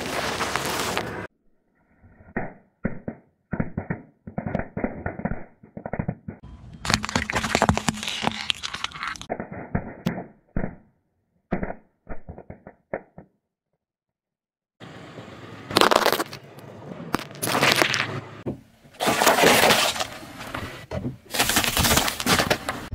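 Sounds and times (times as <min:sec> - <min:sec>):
car tyre crushing brittle objects: 0:06.8 - 0:09.4, 0:15.7 - 0:16.4, 0:17.1 - 0:18.2, 0:18.9 - 0:20.6, 0:21.3 - 0:22.9.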